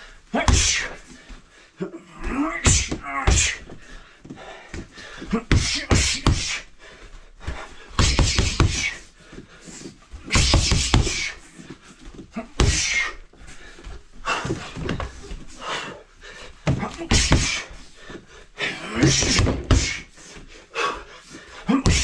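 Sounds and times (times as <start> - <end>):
gloved punches thudding on wood: 2.6 - 3.6, 5.5 - 6.5, 8.0 - 8.9, 10.3 - 11.3, 12.6 - 12.9, 16.6 - 17.7, 19.0 - 20.0.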